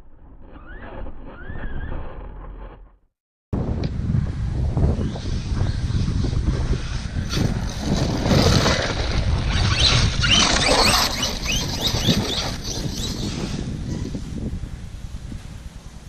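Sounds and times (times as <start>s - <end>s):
wind buffeting microphone: 3.6s - 16.0s
electric rc car motor whine: 5.0s - 14.1s.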